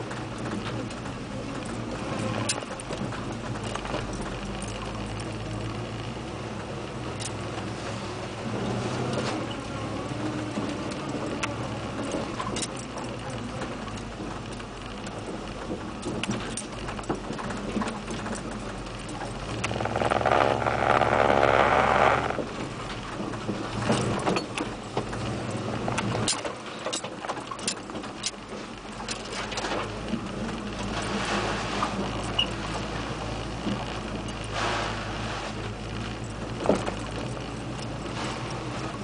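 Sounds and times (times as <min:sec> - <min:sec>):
pickup truck engine running: 0:09.7 - 0:39.0
clatters and knocks in cab: 0:10.5 - 0:21.3, 0:22.3 - 0:31.2, 0:35.8 - 0:39.0.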